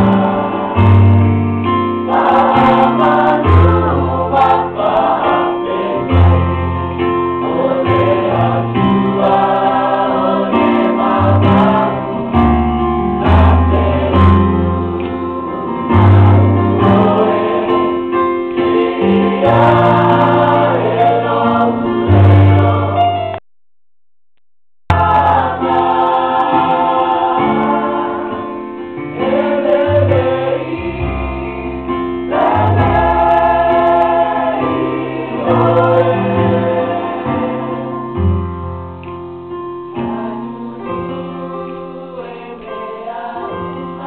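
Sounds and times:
choir singing a hymn: 0.0 - 23.2, 24.9 - 38.5, 39.9 - 44.0
keyboard accompaniment: 0.0 - 23.4, 24.9 - 44.0.

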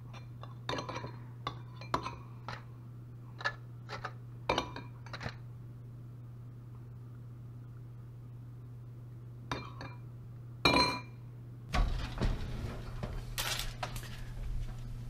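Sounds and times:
steady low hum: 0.0 - 15.0
kitchenware clinking: 0.1 - 2.6
oven door opening with clunks: 11.7 - 15.0
oven racks rattling: 11.7 - 15.0.

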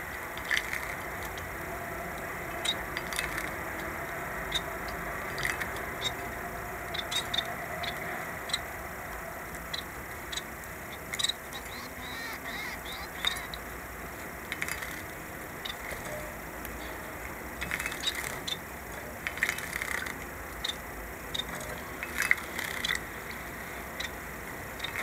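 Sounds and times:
small birds chirping: 9.6 - 13.8, 22.5 - 24.2.

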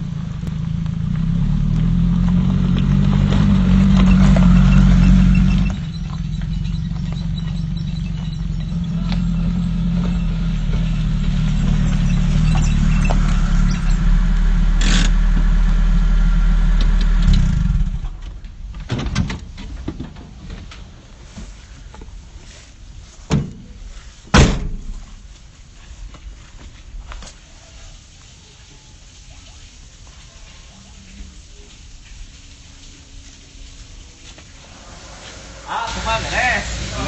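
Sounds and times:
truck engine running: 0.0 - 18.2
sharp knocks and bangs: 24.3 - 25.0.

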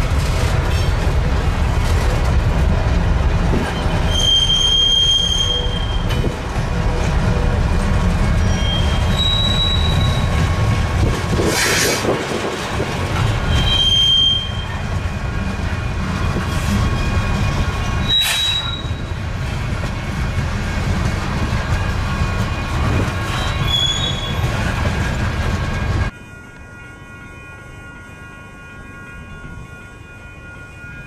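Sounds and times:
freight train rumbling past: 0.0 - 31.0
high-pitched wheel squeals: 3.6 - 6.2, 8.4 - 10.4, 13.4 - 14.8, 16.6 - 19.1, 23.3 - 24.6.

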